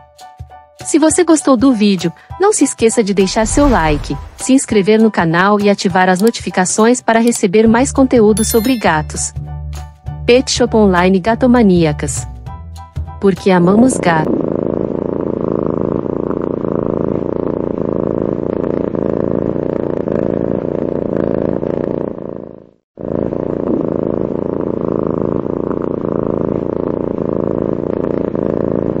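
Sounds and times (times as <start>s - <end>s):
cat purring: 13.9s - 29.0s.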